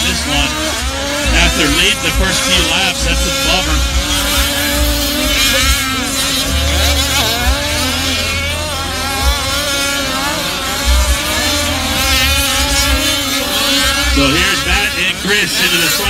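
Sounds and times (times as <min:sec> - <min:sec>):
small engines revving: 0:00.0 - 0:16.0.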